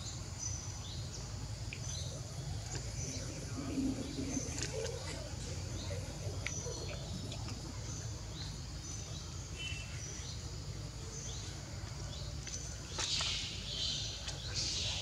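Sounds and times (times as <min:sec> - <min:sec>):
low steady rumble: 0:00.0 - 0:11.6.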